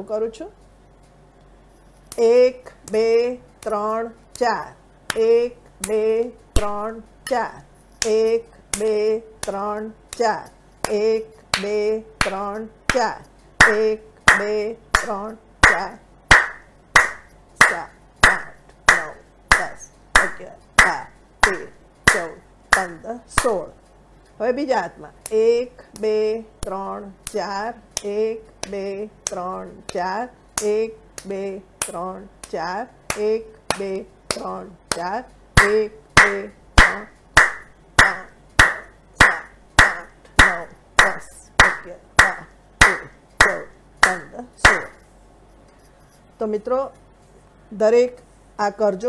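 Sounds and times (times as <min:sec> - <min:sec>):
hand clapping: 0:08.0 - 0:23.6, 0:30.6 - 0:45.0.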